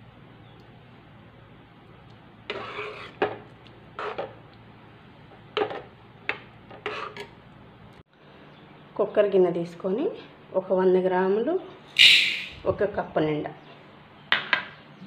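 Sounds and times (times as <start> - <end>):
ladle scraping a steel pan: 2.5 - 3.3.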